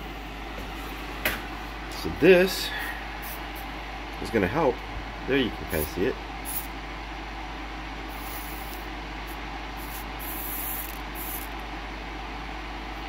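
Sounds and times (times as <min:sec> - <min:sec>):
small fan whirring: 0:00.0 - 0:13.0
soldering iron sizzling in flux: 0:05.7 - 0:06.8, 0:08.1 - 0:11.6.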